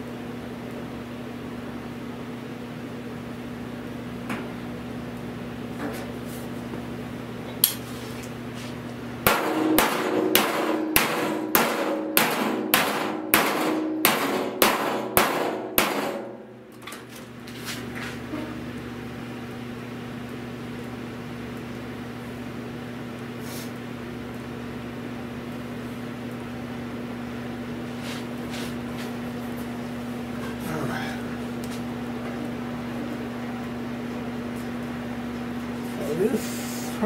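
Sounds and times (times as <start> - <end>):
low steady hum: 0.0 - 37.0
hammer striking sheet metal: 9.2 - 16.5.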